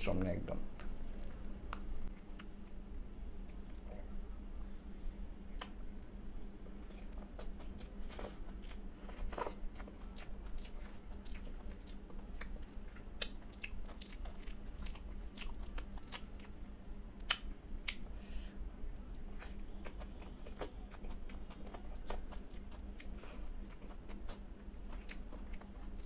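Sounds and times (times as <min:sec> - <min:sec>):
close chewing: 0:05.6 - 0:16.6, 0:17.2 - 0:18.1, 0:18.9 - 0:26.0
wet mouth clicks and smacks: 0:17.2 - 0:18.0.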